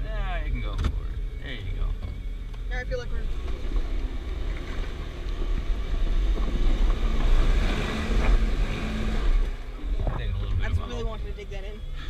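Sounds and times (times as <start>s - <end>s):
engine and drivetrain rumble: 0.0s - 12.0s.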